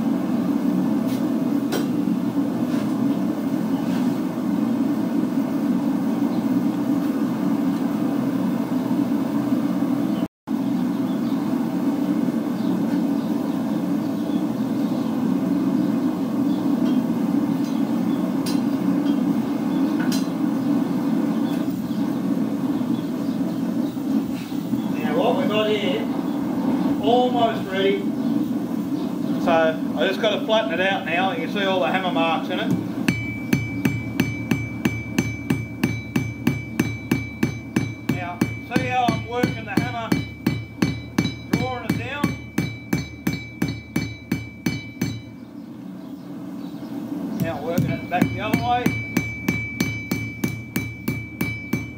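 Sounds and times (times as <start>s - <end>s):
hammer beating on anvil: 32.7s - 45.4s, 47.4s - 51.9s
anvil ringing: 33.0s - 45.4s, 47.8s - 51.9s.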